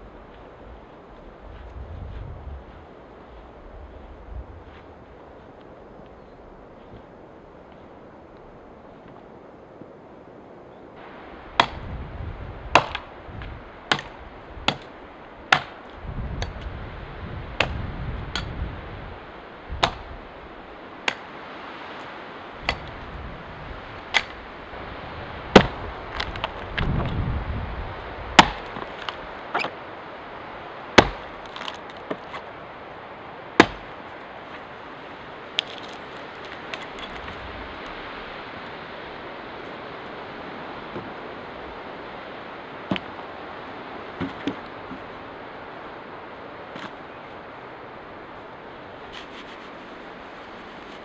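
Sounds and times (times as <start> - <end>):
wind noise: 0.0 - 51.0
axe chopping wood: 11.6 - 11.9, 12.7 - 13.1, 13.9 - 14.9, 15.5 - 15.8, 17.6 - 18.5, 19.8 - 20.1, 21.0 - 21.3, 22.6 - 22.9, 24.1 - 24.4, 25.5 - 26.5, 28.4 - 29.8, 31.0 - 32.4, 33.6 - 34.0, 42.9 - 43.1, 44.2 - 44.6.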